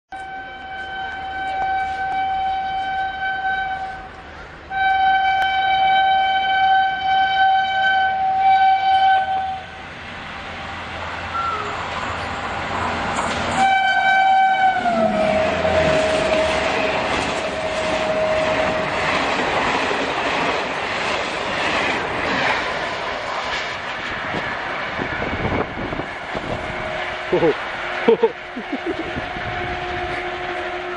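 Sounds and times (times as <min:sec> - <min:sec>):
train horn blasts: 0:00.1 - 0:09.8, 0:13.5 - 0:19.1, 0:25.5 - 0:27.4, 0:28.9 - 0:30.9
train coaches rolling rumble: 0:06.9 - 0:30.9
wheels clacking over rail joints: 0:15.2 - 0:27.0.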